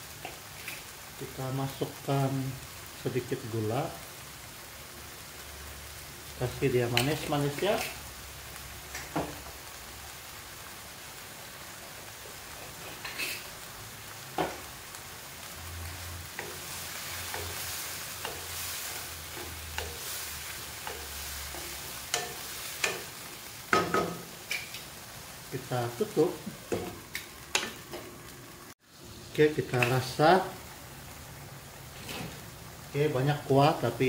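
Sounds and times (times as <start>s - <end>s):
food sizzling in a pan: 0.0s - 34.0s
spatula knocking against pan: 23.7s - 24.2s.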